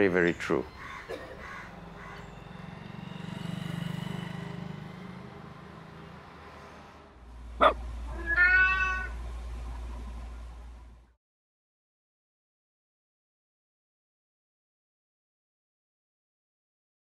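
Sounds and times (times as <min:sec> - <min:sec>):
deep drone: 0:00.8 - 0:08.2
low steady hum: 0:05.1 - 0:11.2
cat meowing: 0:07.6 - 0:09.2.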